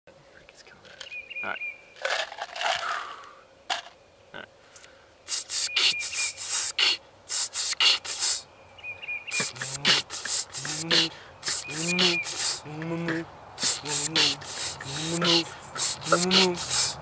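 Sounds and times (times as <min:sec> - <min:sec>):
beatboxed hissing hi-hat sounds: 0:05.3 - 0:08.4, 0:09.3 - 0:17.0.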